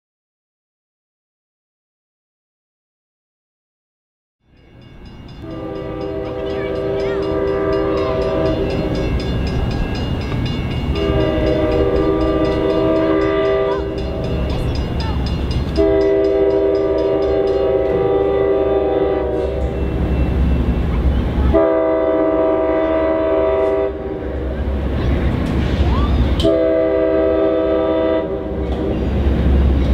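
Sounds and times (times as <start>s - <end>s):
engine and rail rumble: 4.4s - 29.9s
locomotive air horn: 5.4s - 9.1s, 10.9s - 14.4s, 15.7s - 19.8s, 21.5s - 24.6s, 26.4s - 29.0s.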